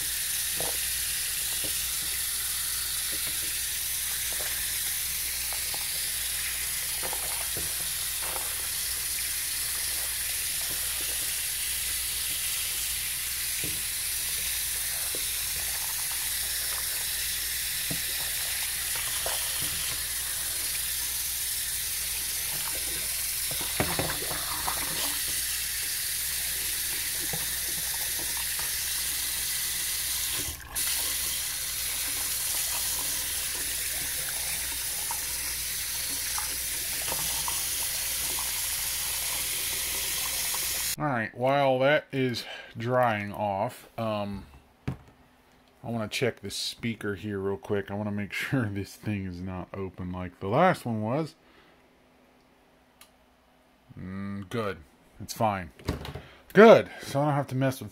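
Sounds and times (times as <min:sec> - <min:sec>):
tap water running into sink: 0:00.0 - 0:41.0.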